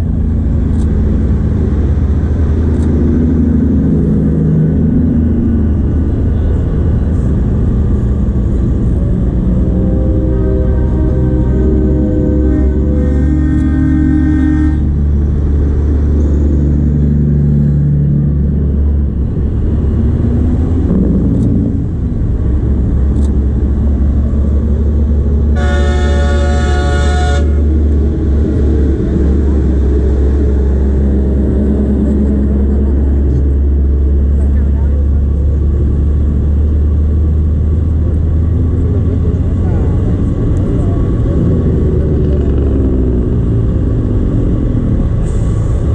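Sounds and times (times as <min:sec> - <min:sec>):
diesel truck engines rumbling: 0:00.0 - 0:45.9
truck horn blast: 0:09.1 - 0:15.2, 0:25.5 - 0:28.0.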